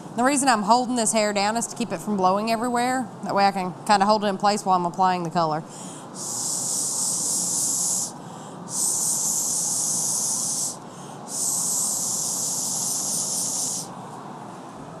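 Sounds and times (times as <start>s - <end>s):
blow pen hissing: 6.2s - 13.9s.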